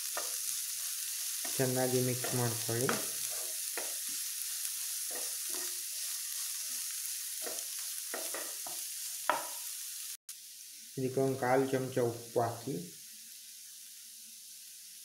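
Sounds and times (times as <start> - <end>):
spatula scraping a pan: 0.0 - 9.5
onions sizzling in a pan: 0.0 - 15.0.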